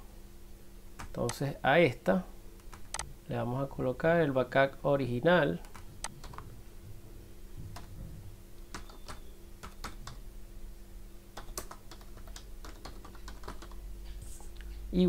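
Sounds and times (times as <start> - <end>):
faint steady hum: 0.0 - 15.0
computer keyboard typing: 2.7 - 3.1, 5.6 - 6.5, 8.7 - 10.2, 11.4 - 13.8.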